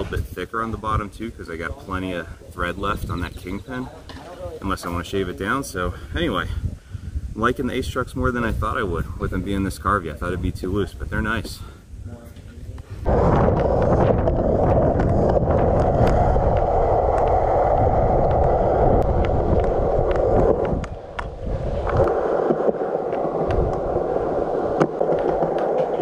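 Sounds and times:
wind on microphone: 0:00.0 - 0:26.0
skateboard wheels rumbling on concrete: 0:13.0 - 0:26.0.

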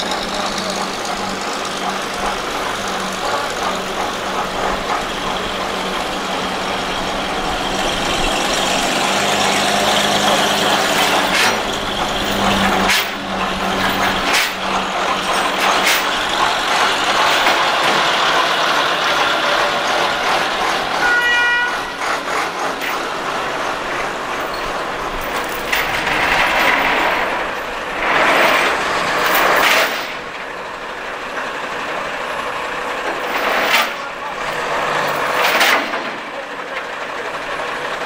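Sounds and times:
fire engine engines running: 0:00.0 - 0:38.0.

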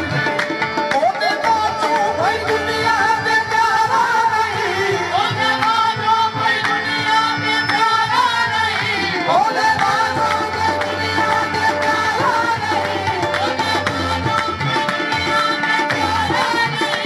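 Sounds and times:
harmonium chords: 0:00.0 - 0:17.0
lead voice singing: 0:01.0 - 0:17.0
hand-clapping: 0:09.8 - 0:17.0.

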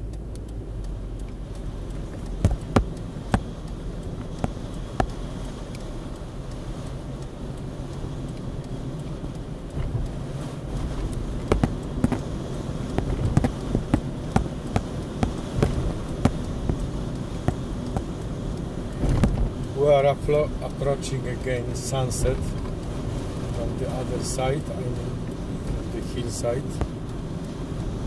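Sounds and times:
sharp clicks and knocks: 0:00.0 - 0:07.3, 0:08.2 - 0:19.8, 0:23.8 - 0:27.2
car engine and road rumble: 0:00.0 - 0:28.0.

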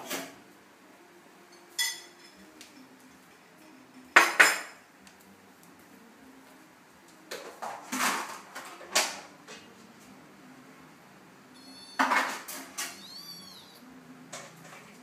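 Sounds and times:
cat squeak: 0:11.5 - 0:13.9.

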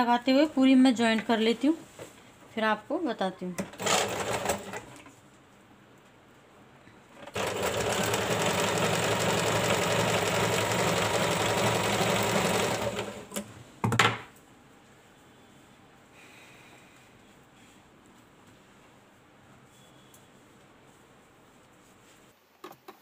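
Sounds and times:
sewing machine running: 0:03.6 - 0:04.9, 0:07.2 - 0:13.4.

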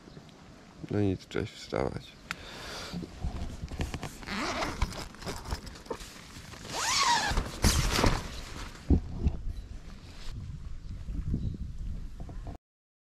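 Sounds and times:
tent fabric rustling: 0:03.4 - 0:09.2
zipper pulled open: 0:03.8 - 0:08.1.

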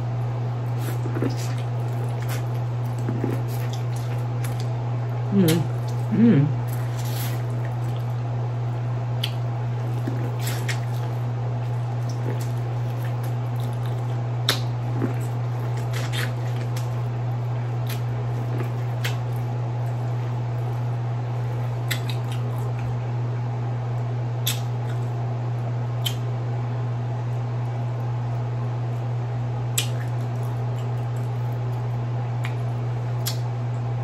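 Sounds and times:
steady low hum: 0:00.0 - 0:34.0
chewing corn on the cob: 0:00.7 - 0:23.0, 0:29.7 - 0:33.6
wet mouth clicks and smacks: 0:09.2 - 0:09.4, 0:13.7 - 0:15.1, 0:21.8 - 0:22.8, 0:24.4 - 0:25.1, 0:26.0 - 0:26.3, 0:29.7 - 0:31.3, 0:32.4 - 0:33.5.

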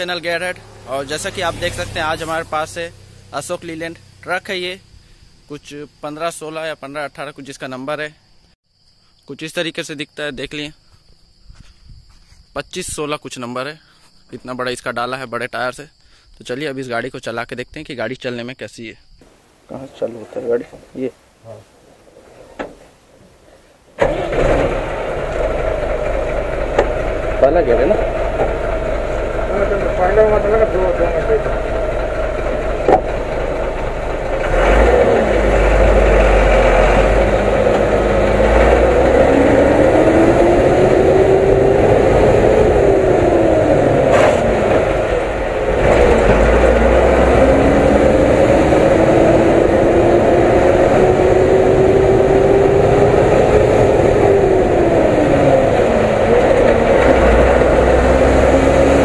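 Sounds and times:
truck diesel engine accelerating: 0:00.0 - 0:05.0, 0:24.0 - 0:59.0.

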